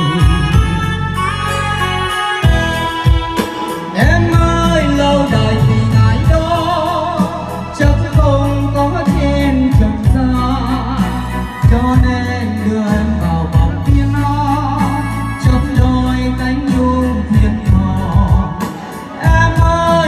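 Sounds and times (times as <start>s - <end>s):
man singing into a microphone: 0.0s - 2.4s, 3.4s - 20.0s
instrumental accompaniment: 0.0s - 20.0s.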